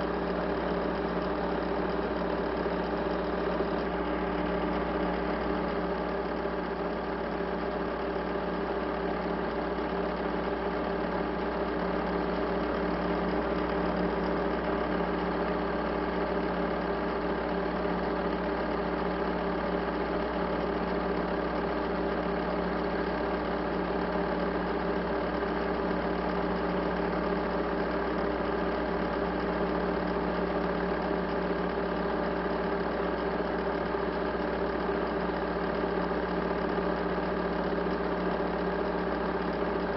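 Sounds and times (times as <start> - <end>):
steady mechanical hum: 0.0 - 18.4.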